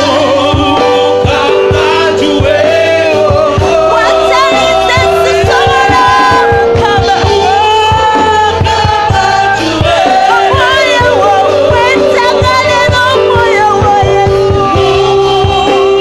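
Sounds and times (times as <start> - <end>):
held keyboard notes: 0.0 - 16.0
steady drum beat: 0.0 - 16.0
voices singing along: 0.0 - 16.0
woman singing into a microphone: 3.7 - 16.0.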